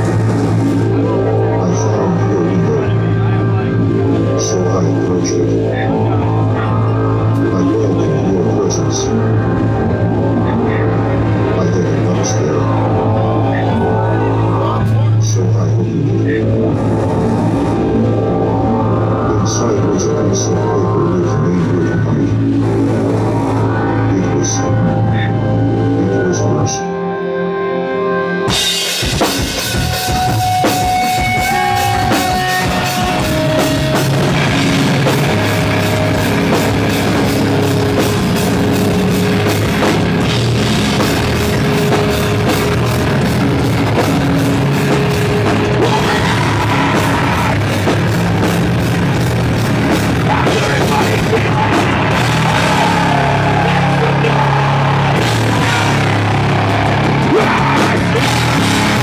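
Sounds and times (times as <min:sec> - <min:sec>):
live metal band playing: 0:00.0 - 0:59.0.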